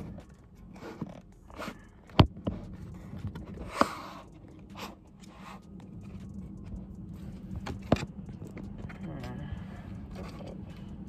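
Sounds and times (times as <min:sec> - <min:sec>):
sharp clicks and knocks: 0:07.5 - 0:09.0.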